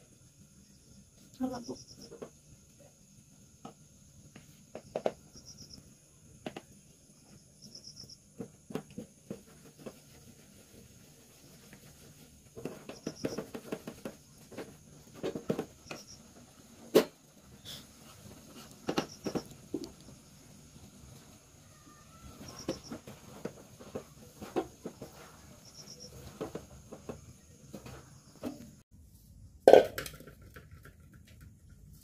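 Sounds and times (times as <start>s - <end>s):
cricket chirping: 0.1s - 9.5s, 12.6s - 14.8s, 15.5s - 16.4s, 18.5s - 28.8s.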